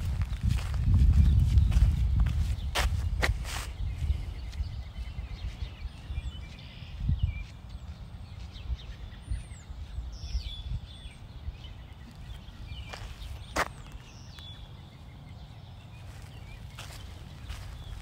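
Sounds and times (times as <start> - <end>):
birds chirping: 0.0 - 18.0
footsteps on dirt road: 0.0 - 18.0.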